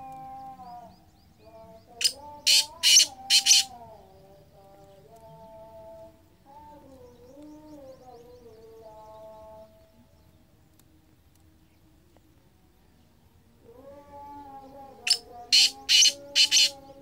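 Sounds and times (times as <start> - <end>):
bird harsh grating calls: 2.0 - 3.7, 15.1 - 16.8.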